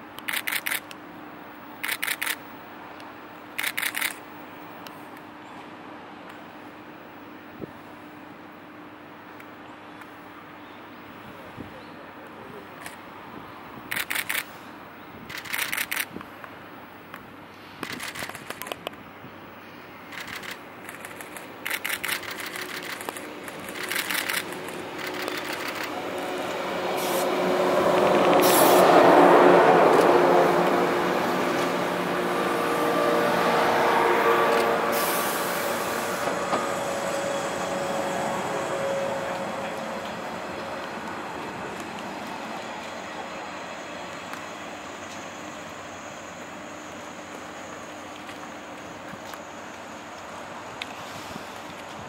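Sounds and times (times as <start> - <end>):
train running gear rumbling: 20.0 - 34.8, 35.6 - 52.0
train motor whining: 20.2 - 30.1.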